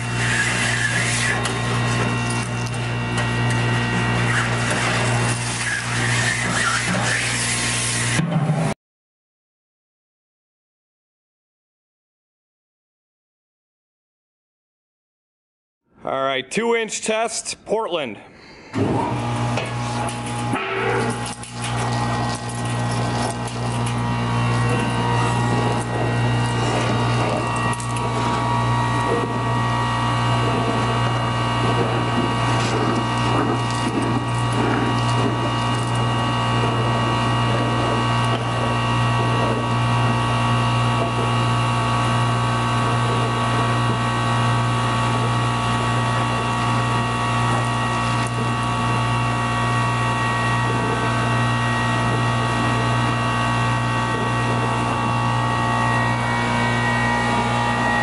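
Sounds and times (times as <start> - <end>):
gritty rattling in hose: 0.0 - 8.2, 19.5 - 40.2
industrial vacuum humming: 0.0 - 8.6, 18.2 - 58.0.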